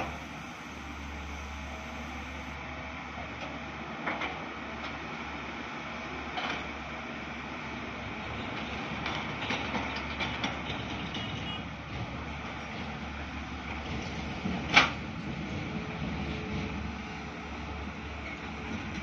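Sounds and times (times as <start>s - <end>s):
excavator diesel engines: 0.0s - 19.0s.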